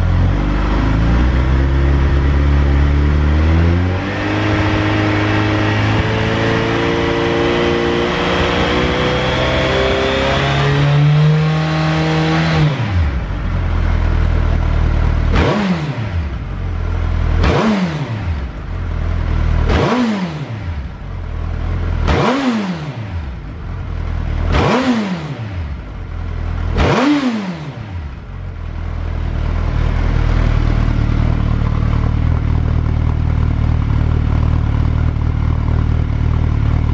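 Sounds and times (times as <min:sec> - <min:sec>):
motorcycle engine idling: 0:00.0 - 0:03.4, 0:12.8 - 0:19.8, 0:20.4 - 0:22.4, 0:23.0 - 0:26.8, 0:27.8 - 0:36.9
motorcycle engine revving: 0:00.0 - 0:36.9.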